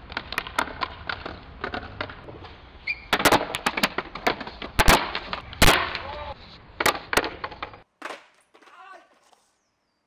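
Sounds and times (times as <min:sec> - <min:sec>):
skateboard clacking on stone: 0:00.0 - 0:02.3, 0:03.1 - 0:09.4
skateboard landing slap: 0:03.1 - 0:06.2, 0:06.8 - 0:09.4.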